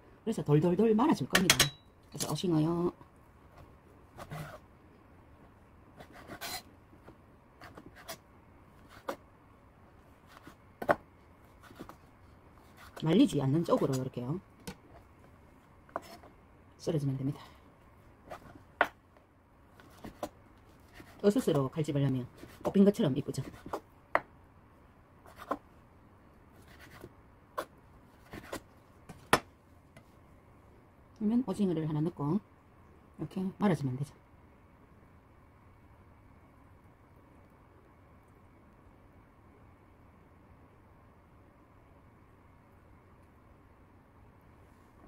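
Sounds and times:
knife scraping: 0:06.0 - 0:06.7.

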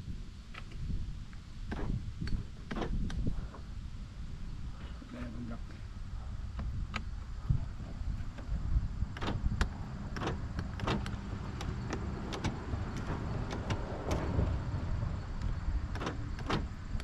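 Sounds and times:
steady low rumble: 0:00.0 - 0:17.0
car door lock clicks: 0:01.7 - 0:03.2, 0:06.6 - 0:07.1, 0:09.1 - 0:14.5, 0:15.9 - 0:17.0.

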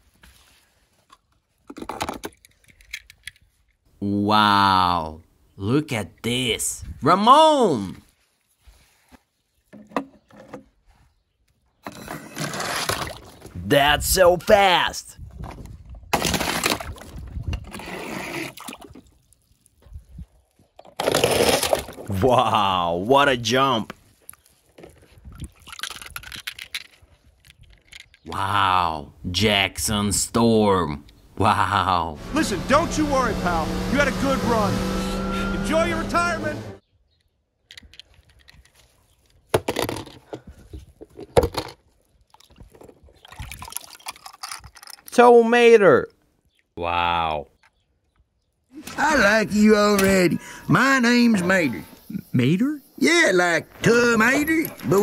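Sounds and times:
water sloshing in a plastic tub: 0:42.2 - 0:44.4.

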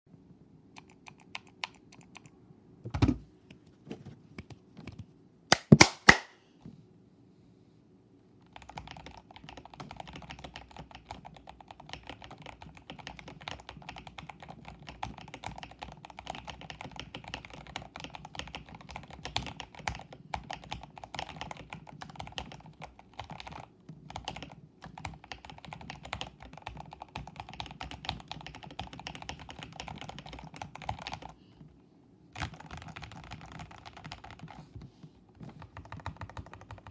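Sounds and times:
mechanical keyboard typing: 0:00.8 - 0:02.3, 0:08.4 - 0:31.4, 0:32.4 - 0:34.6, 0:35.5 - 0:36.9.

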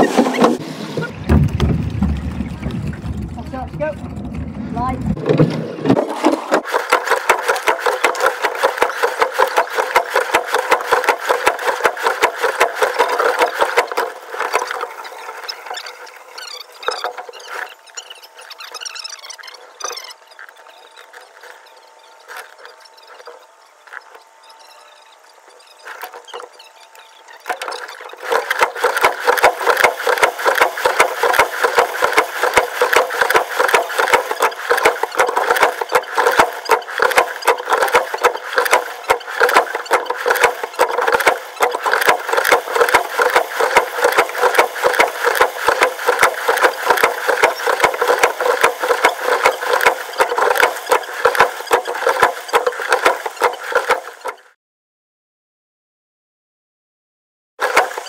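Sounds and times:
rapid rattling clatter: 0:00.0 - 0:17.8, 0:27.4 - 0:54.5, 0:57.6 - 0:58.0.

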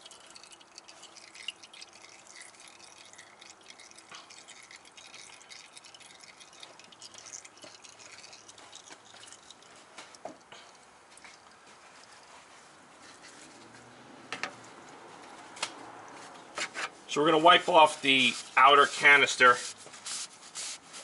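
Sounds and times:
oil dripping into a pan: 0:00.0 - 0:16.2.

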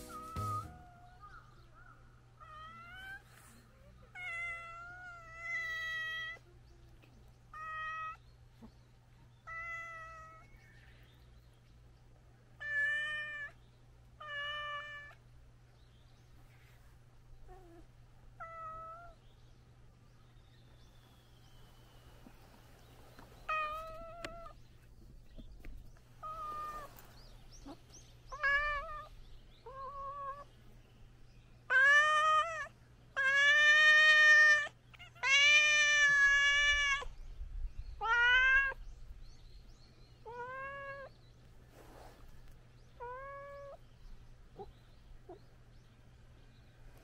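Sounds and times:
cats yowling: 0:00.4 - 0:01.4, 0:26.2 - 0:26.9, 0:27.6 - 0:30.5, 0:31.7 - 0:37.2, 0:38.0 - 0:38.8, 0:40.2 - 0:41.1.

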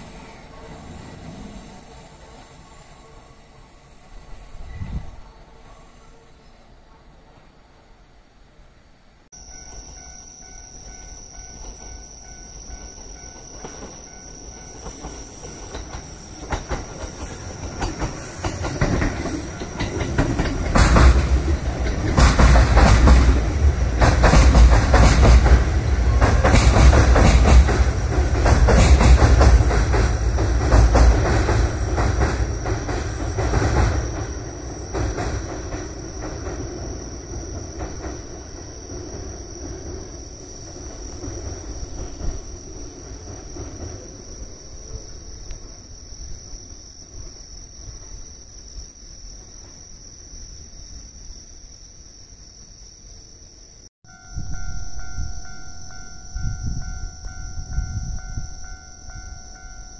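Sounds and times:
electric train rumbling: 0:00.0 - 0:51.2, 0:54.1 - 0:59.9
wheels clacking over rail joints: 0:13.0 - 0:40.0.

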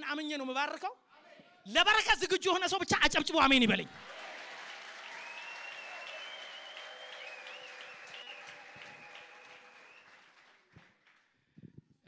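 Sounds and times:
congregation clapping: 0:03.7 - 0:11.4.

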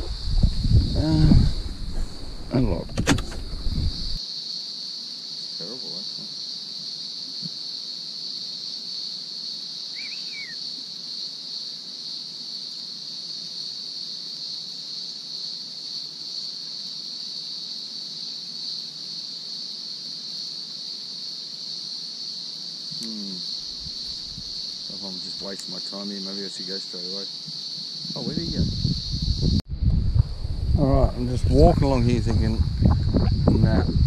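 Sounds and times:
high-pitched insect drone: 0:00.0 - 0:34.0
short bird chirp: 0:10.0 - 0:10.6.

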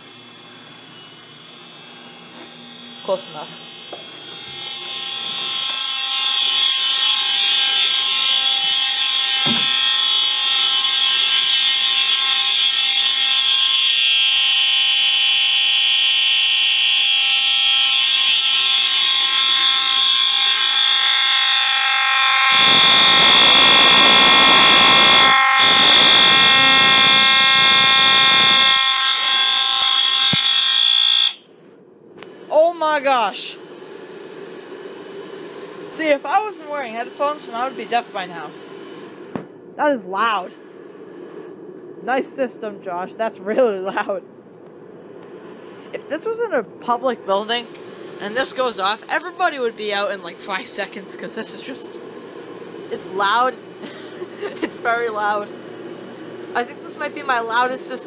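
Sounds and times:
fire alarm horns buzzing: 0:00.0 - 0:31.6, 0:35.0 - 0:38.6, 0:47.4 - 0:58.0.

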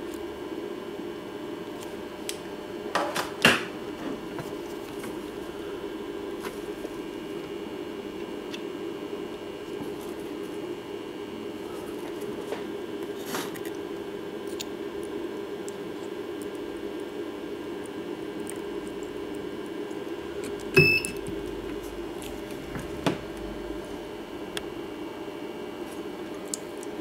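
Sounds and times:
steady low hum: 0:03.7 - 0:27.0
short beep: 0:20.8 - 0:21.2.

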